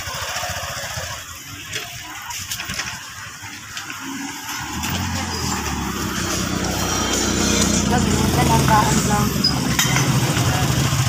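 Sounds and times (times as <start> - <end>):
market street noise: 0.0 - 11.0
vehicle engine running: 0.0 - 11.0.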